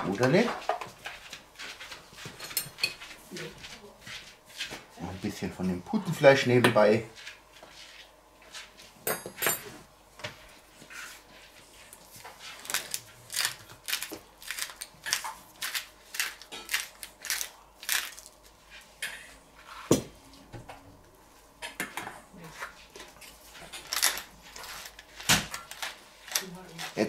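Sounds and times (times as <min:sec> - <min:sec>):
tableware clink: 0:09.0 - 0:09.7
pepper mill grinding: 0:12.6 - 0:18.5, 0:23.8 - 0:27.0.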